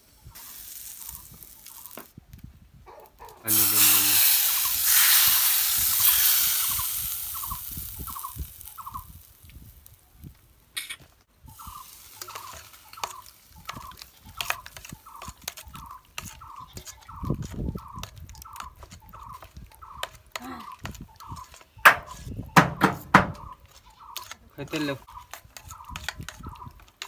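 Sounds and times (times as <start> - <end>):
spoon stirring in a steel bowl: 12.2 - 22.3, 23.6 - 27.0.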